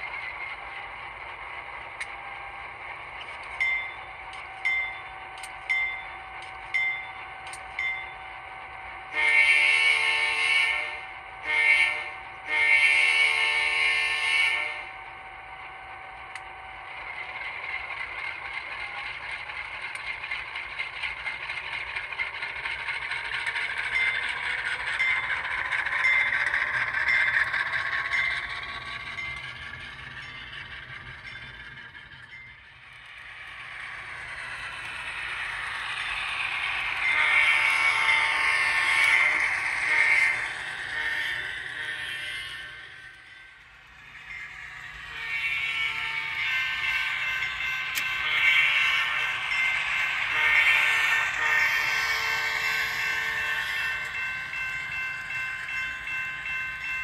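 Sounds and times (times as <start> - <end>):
locomotive bell ringing: 3.0 - 15.0, 16.9 - 57.0
train air horn blasts: 9.1 - 14.9.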